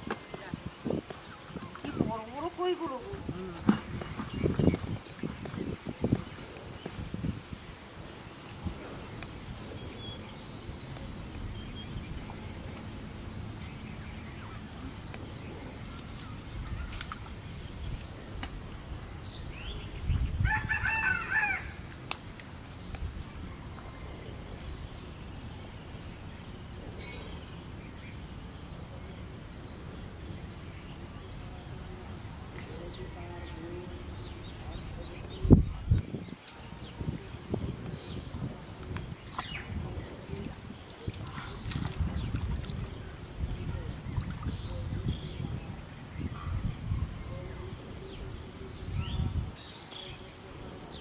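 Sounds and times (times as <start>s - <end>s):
steady high-pitched hiss: 0.0s - 51.0s
rooster crowing: 20.4s - 21.8s.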